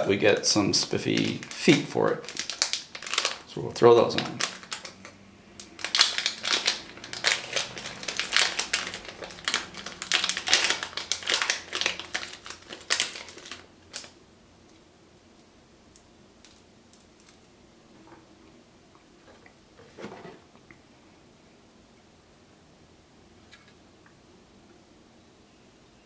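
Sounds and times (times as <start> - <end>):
plastic bag crinkling: 0.0 - 14.2, 16.4 - 17.5.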